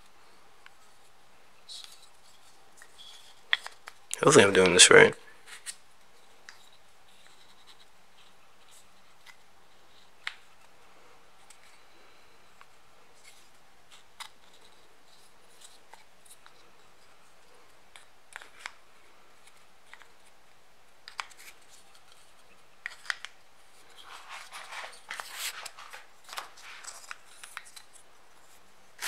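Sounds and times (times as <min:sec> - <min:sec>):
rustling and scraping: 0:21.2 - 0:29.0.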